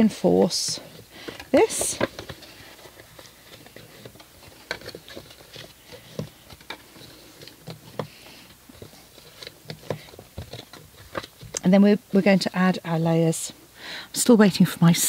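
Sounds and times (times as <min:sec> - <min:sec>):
paper clicks and rustles: 0:00.1 - 0:11.7.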